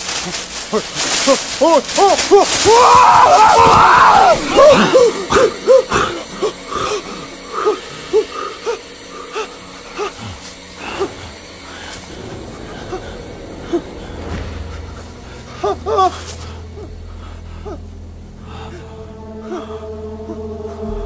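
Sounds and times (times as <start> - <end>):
man crying out in terror: 1.6 - 8.8.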